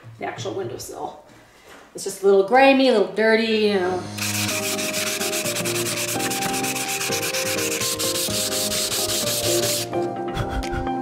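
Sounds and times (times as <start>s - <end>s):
sandpaper rubbing on wood: 4.2s - 9.9s.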